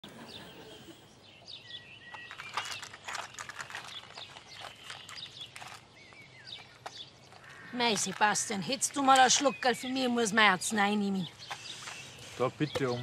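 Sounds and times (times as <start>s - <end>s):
birds chirping and whistling: 0.1s - 13.0s
soft clicks and rustles: 2.1s - 9.6s.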